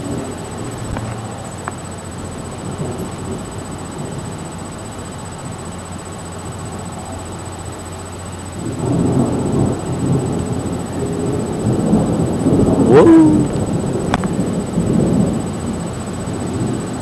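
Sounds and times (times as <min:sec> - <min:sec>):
brief rising tone: 0:12.9 - 0:13.6.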